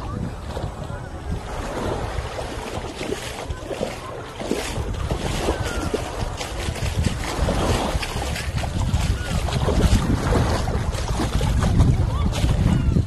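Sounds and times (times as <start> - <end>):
small waves washing on sand: 0.0 - 13.0
wind buffeting microphone: 0.0 - 13.0.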